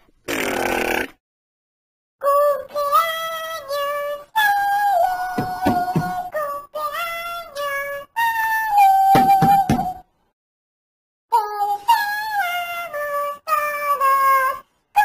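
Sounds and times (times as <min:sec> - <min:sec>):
high-pitched cartoon voice singing: 0:02.2 - 0:10.0, 0:11.3 - 0:15.0.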